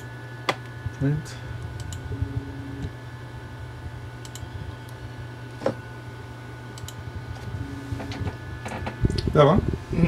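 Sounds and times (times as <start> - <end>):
steady low hum: 0.0 - 10.0
computer mouse clicks: 4.2 - 4.5, 6.8 - 7.0.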